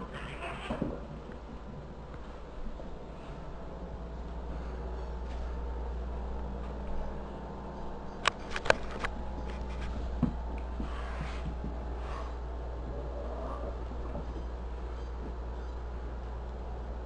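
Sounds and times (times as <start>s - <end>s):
steady low hum: 0.0s - 17.0s
cats scuffling on hard floor: 7.8s - 16.1s.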